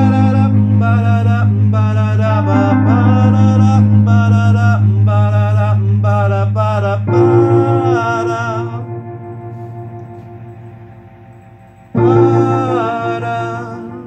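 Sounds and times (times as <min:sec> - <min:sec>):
man singing: 0:00.0 - 0:09.1, 0:12.0 - 0:14.0
electronic keyboard chords: 0:00.0 - 0:14.0.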